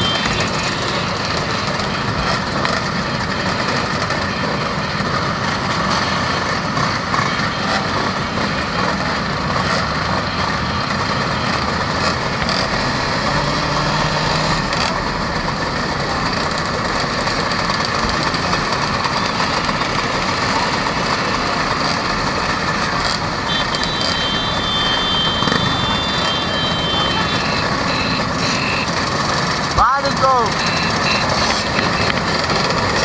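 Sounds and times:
scooter engines idling: 0.0s - 33.0s
high steady tone: 23.3s - 32.3s.

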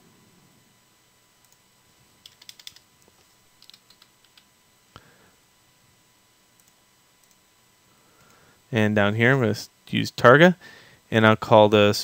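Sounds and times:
typing on computer keyboard: 2.2s - 2.8s, 3.6s - 4.5s.

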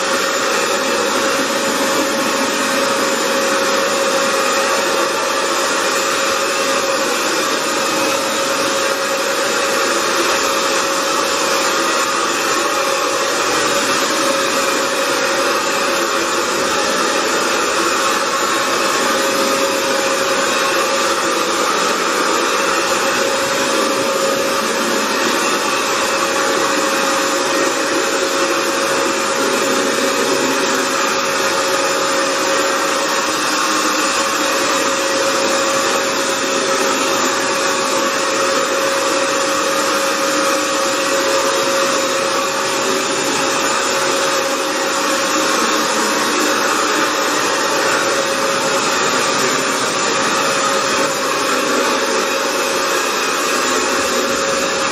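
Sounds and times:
floor cleaner motor whine: 0.0s - 54.9s
suction rushing: 0.0s - 54.9s.

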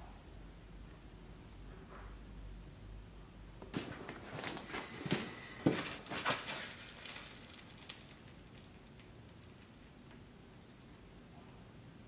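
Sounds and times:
rustling with light knocks: 3.6s - 10.2s.

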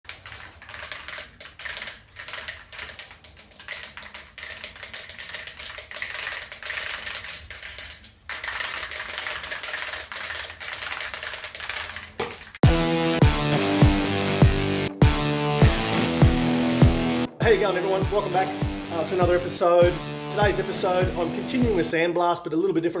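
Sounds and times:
spray can rattling: 0.1s - 12.6s.

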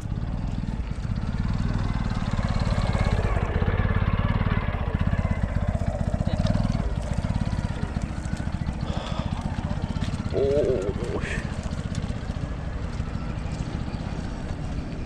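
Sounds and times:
small motorcycle engine putter: 5.7s - 14.9s.

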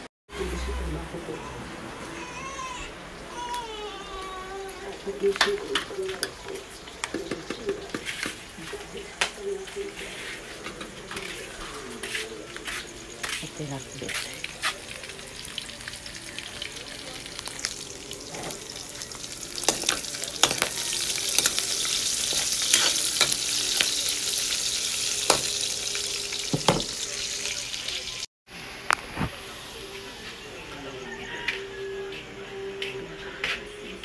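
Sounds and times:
chicken sizzling in a wok: 5.0s - 30.3s, 31.0s - 31.8s
metal spatula scraping a pan: 19.6s - 25.8s.

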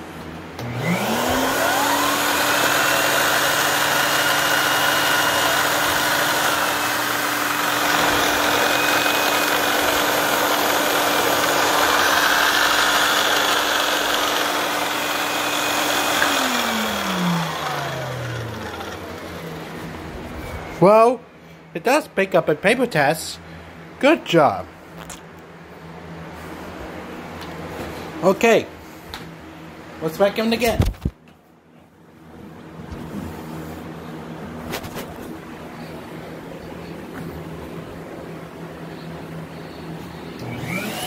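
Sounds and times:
vacuum cleaner running: 0.5s - 20.2s, 39.5s - 41.0s.

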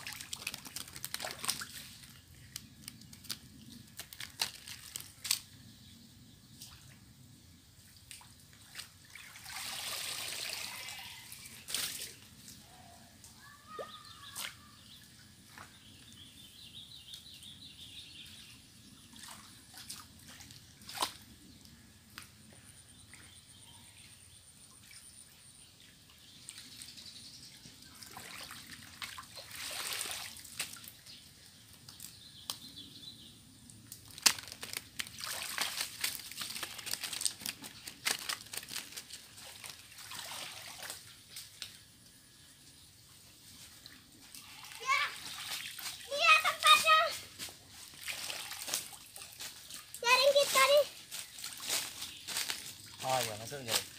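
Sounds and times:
muddy water sloshing and splashing: 0.0s - 2.6s, 8.0s - 12.6s, 19.1s - 21.4s, 27.8s - 31.2s, 34.1s - 41.7s, 43.6s - 53.9s.

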